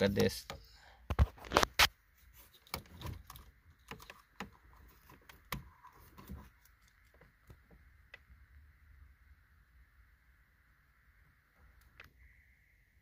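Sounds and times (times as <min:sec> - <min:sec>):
faint clicks and taps of wires: 0:00.0 - 0:08.4.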